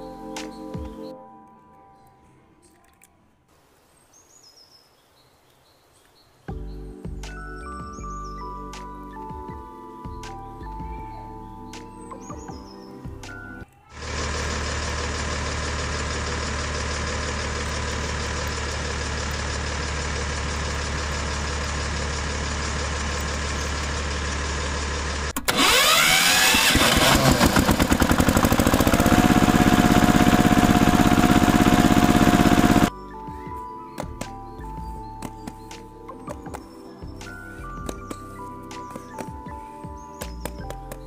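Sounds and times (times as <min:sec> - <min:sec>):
engine chugging: 0:14.0 - 0:32.9
tractor engine idling: 0:14.0 - 0:32.9.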